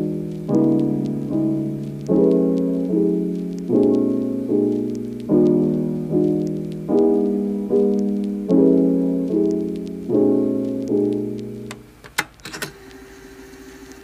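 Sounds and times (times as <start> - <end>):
soft piano chords: 0.0 - 12.0.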